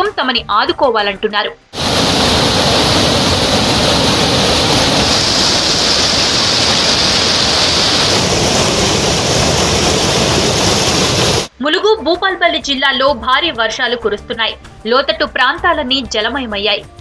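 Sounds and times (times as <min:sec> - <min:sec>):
floodwater rushing: 0:01.8 - 0:11.5.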